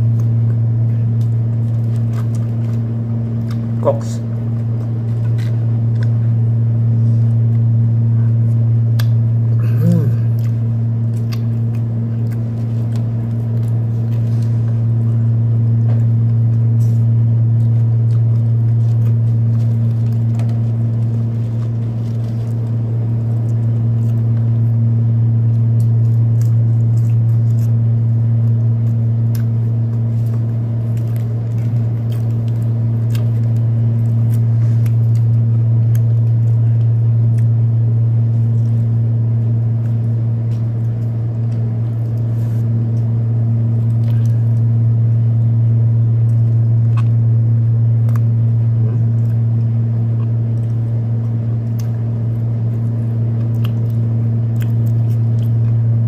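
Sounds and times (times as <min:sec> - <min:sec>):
chewing clicks: 0:00.0 - 0:06.2, 0:08.4 - 0:09.2, 0:10.0 - 0:15.1, 0:25.4 - 0:37.6, 0:43.7 - 0:44.8, 0:46.2 - 0:47.3, 0:47.9 - 0:55.9
air conditioner humming: 0:00.0 - 0:56.0.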